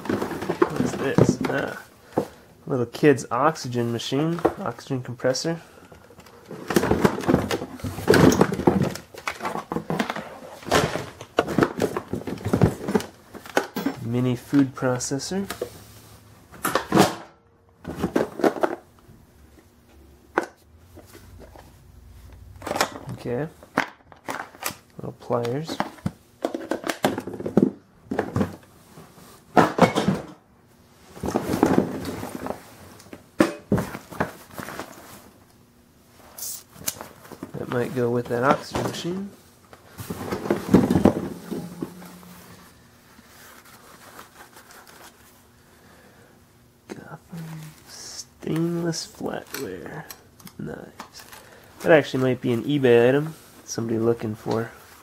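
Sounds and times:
plastic items knocking and clattering: 0.0s - 2.4s, 5.8s - 14.7s, 16.6s - 18.9s, 22.6s - 24.8s, 25.4s - 28.7s, 29.5s - 30.4s, 31.1s - 35.2s, 37.0s - 45.3s
rummaging in cardboard box: 0.0s - 2.4s, 6.3s - 13.6s, 31.1s - 32.8s, 37.0s - 45.4s
rustling: 36.1s - 45.4s.

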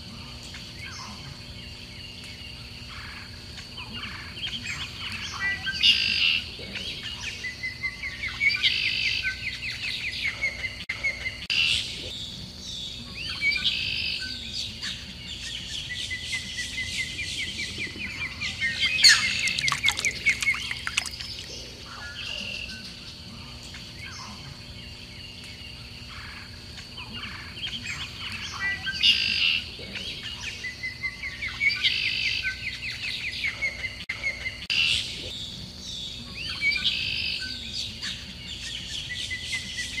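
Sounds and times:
bird chirps: 13.2s - 23.0s
bird trill: 15.4s - 22.8s.

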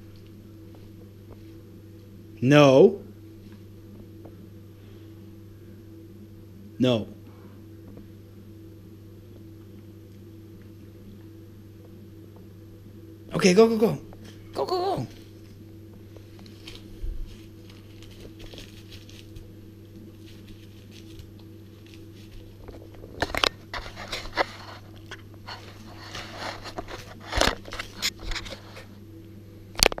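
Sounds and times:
steady low hum: 0.0s - 30.0s
dog tearing and chewing paper: 16.4s - 28.9s.

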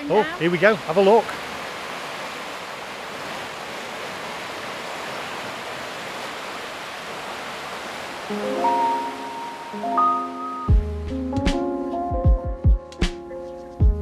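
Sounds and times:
water rushing through sluices: 0.0s - 9.9s.

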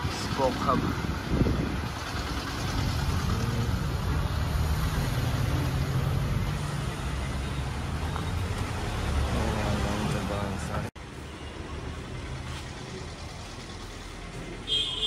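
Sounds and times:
street noise: 0.0s - 15.0s
vehicle engine running: 11.9s - 14.7s.

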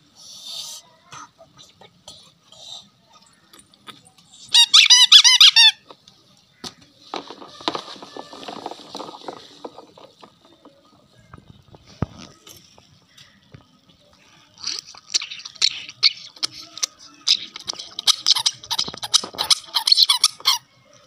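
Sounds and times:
rubber duck squeaking: 4.4s - 5.8s, 14.6s - 20.7s.

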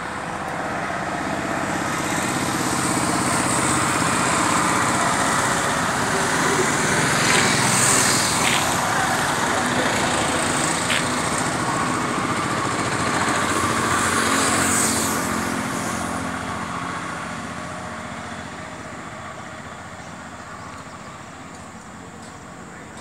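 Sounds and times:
vehicle passing high-revving engine: 0.7s - 18.5s.

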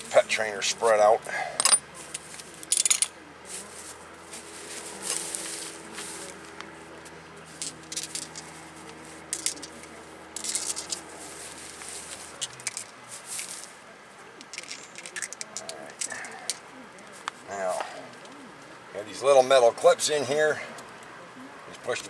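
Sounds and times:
metal parts clinking and scraping: 1.6s - 1.8s, 2.7s - 3.2s, 7.6s - 8.6s, 9.3s - 9.8s, 10.4s - 11.1s, 11.7s - 13.7s, 14.4s - 16.6s.

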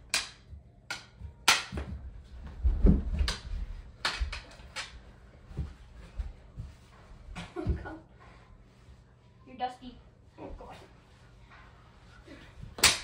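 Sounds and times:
bodies thumping on carpeted floor: 1.8s - 3.8s
hockey sticks clacking: 3.2s - 5.1s.

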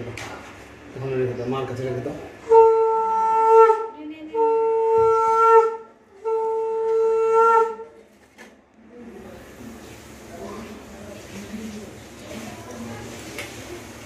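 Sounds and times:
conch shell blasts: 2.5s - 7.9s.

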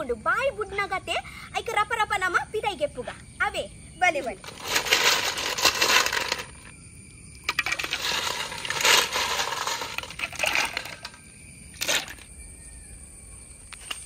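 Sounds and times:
snail shells clattering: 4.4s - 6.7s, 7.4s - 12.3s.

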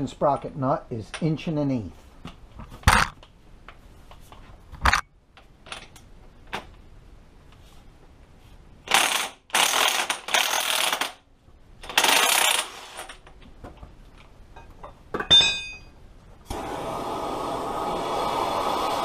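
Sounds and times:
metallic clink: 14.6s - 16.0s.

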